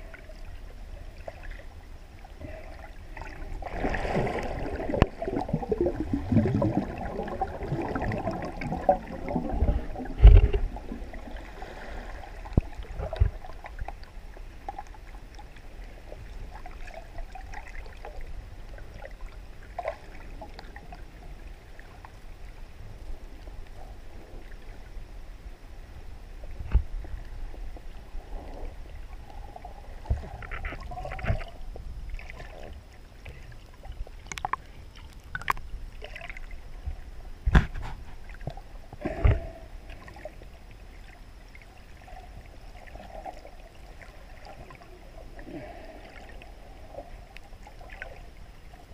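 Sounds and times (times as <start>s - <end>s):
muffled underwater water sloshing: 0.0s - 48.9s
faint ticks: 30.0s - 31.9s, 33.2s - 35.7s.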